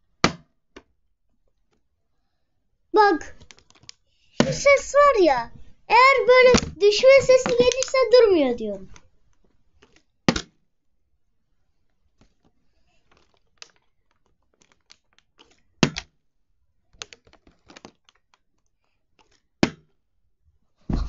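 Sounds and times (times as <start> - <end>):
plastic bottle crackling: 6.2 - 8.2.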